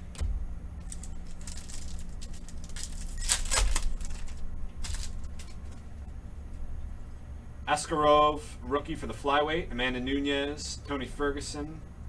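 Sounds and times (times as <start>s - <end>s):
steady low hum: 0.0s - 12.0s
foil wrapper crinkling and tearing: 0.8s - 5.8s
cards being handled: 0.8s - 5.9s.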